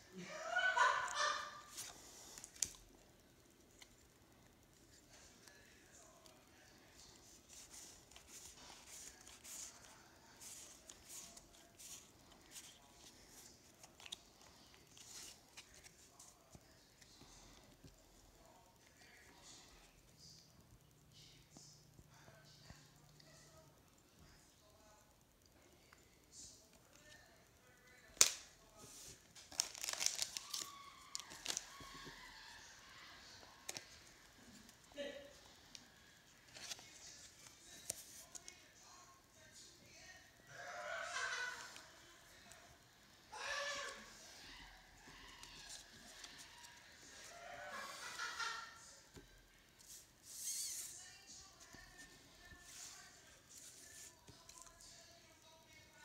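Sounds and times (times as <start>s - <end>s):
plastic wrapper crinkling: 28.2s - 32.2s.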